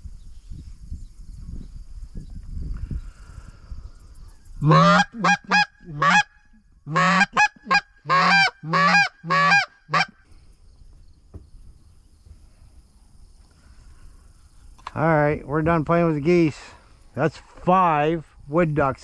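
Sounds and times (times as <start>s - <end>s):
goose call honks and clucks: 4.6s - 10.2s.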